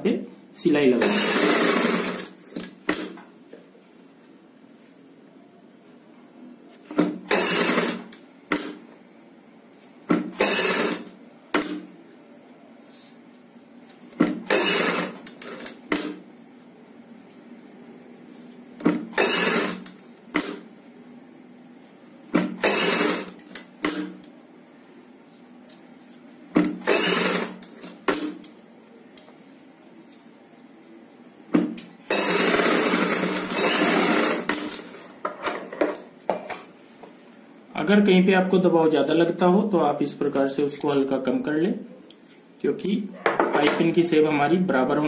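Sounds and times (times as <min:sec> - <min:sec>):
sewing machine stitching: 0:01.0 - 0:03.2, 0:07.1 - 0:08.8, 0:10.1 - 0:11.8, 0:14.2 - 0:16.2, 0:18.9 - 0:20.6, 0:22.4 - 0:24.2, 0:26.6 - 0:28.4, 0:32.1 - 0:35.0.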